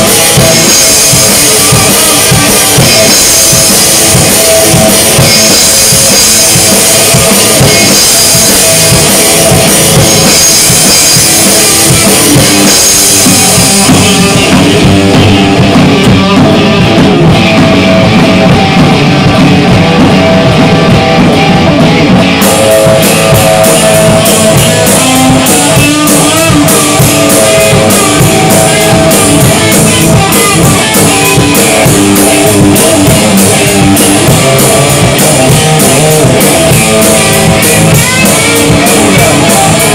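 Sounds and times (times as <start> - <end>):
rock band playing: 0.0 - 39.9.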